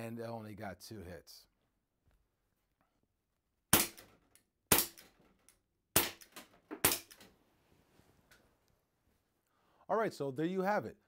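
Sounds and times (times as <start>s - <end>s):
air pistol shots: 3.7s - 5.1s, 6.0s - 7.2s.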